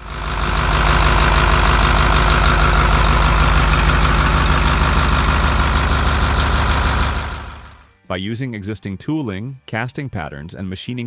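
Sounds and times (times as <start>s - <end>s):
engine idling: 0.0s - 7.9s.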